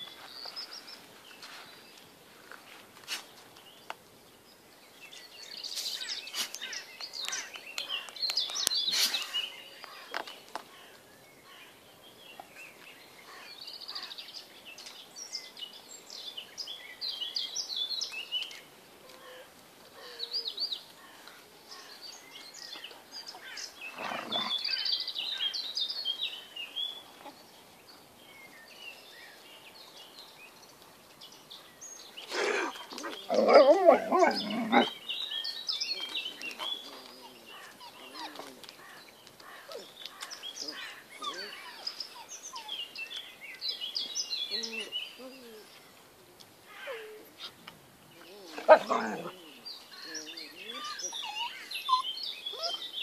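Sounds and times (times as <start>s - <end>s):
dogs playing roughly: 23.9s - 24.5s, 32.5s - 34.9s
puppy squeaks and chirps: 51.1s - 52.8s.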